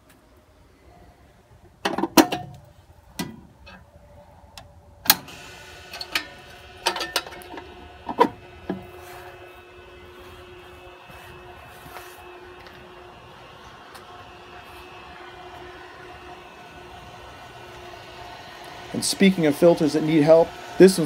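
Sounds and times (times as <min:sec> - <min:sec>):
pump motor humming: 0:05.1 - 0:21.0.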